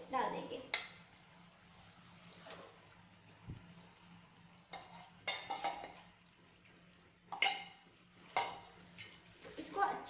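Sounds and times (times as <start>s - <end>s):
utensil scraping bowl and pan: 4.7s - 6.2s.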